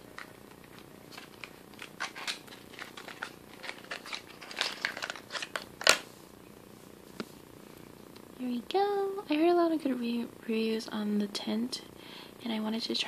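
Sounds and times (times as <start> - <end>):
packaging crinkling and rustling: 0.1 - 6.1.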